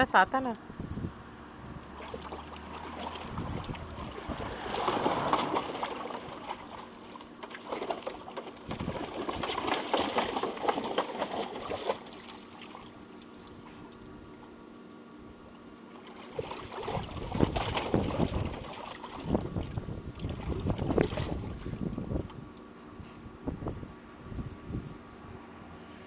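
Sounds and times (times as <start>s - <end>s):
dog splashing in water: 1.9s - 13.7s, 15.9s - 21.6s.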